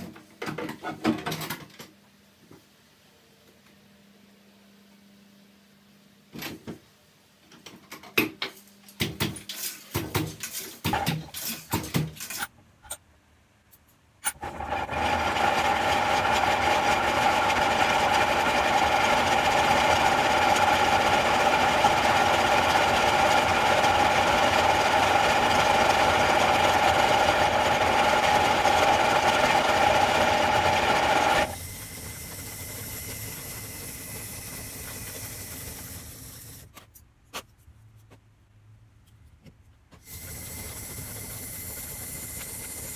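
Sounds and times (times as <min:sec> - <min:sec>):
bobbin winder whirring: 0:14.2 - 0:36.7, 0:40.0 - 0:42.9.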